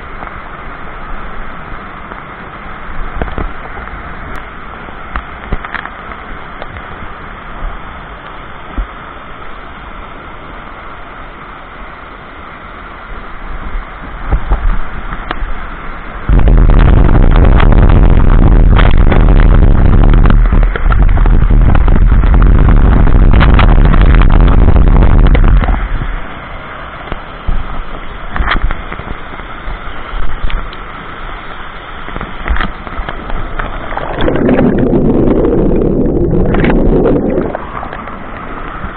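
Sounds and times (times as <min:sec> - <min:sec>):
waterfall rushing: 0:00.0 - 0:38.9
muffled underwater bubbling: 0:32.3 - 0:38.9.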